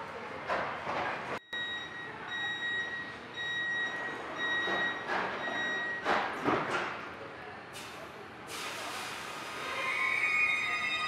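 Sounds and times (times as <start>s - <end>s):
train door warning beeps: 1.4s - 6.1s.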